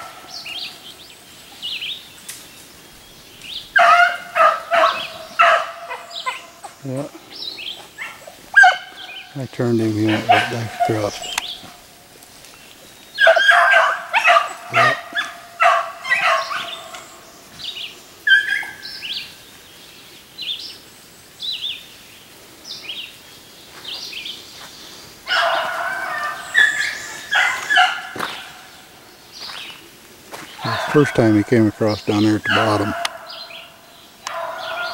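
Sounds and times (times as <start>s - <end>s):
hounds baying: 3.6s - 17.4s, 18.2s - 19.1s, 25.2s - 29.5s, 30.3s - 34.9s.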